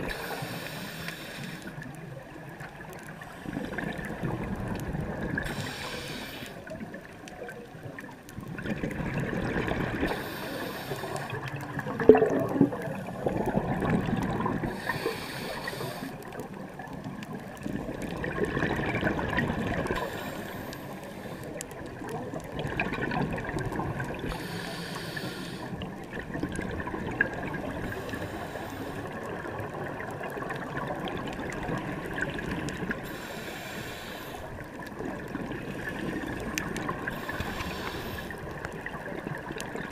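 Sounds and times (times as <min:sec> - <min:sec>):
scuba regulator hissing inhale: 0:00.0 - 0:01.9, 0:05.4 - 0:06.7, 0:10.0 - 0:11.5, 0:14.6 - 0:16.3, 0:20.0 - 0:21.6, 0:24.2 - 0:25.8, 0:27.8 - 0:29.2, 0:33.0 - 0:34.6, 0:37.0 - 0:38.6
exhaled air bubbling: 0:00.0 - 0:39.9.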